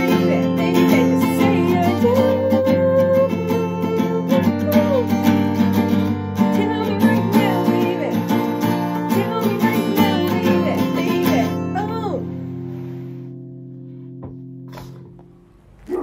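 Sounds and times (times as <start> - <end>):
person singing: 0.0 - 5.3, 6.5 - 12.4
acoustic guitar strummed chords: 0.0 - 15.2.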